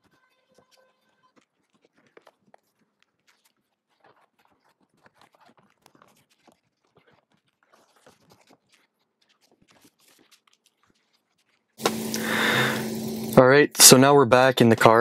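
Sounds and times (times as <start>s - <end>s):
faint multi-tone hum: 11.8s - 14.5s.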